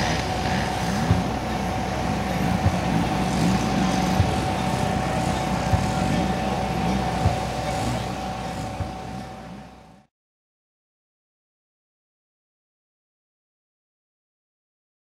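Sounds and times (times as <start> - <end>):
model airplane engine running: 0.0 - 10.0.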